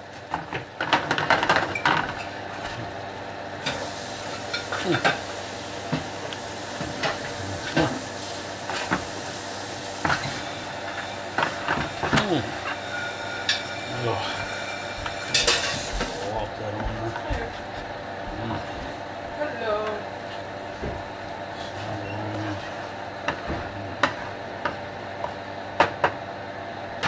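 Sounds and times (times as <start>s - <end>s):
eggs sizzling in butter: 3.6s - 16.3s
spatula scraping a pan: 10.0s - 16.0s.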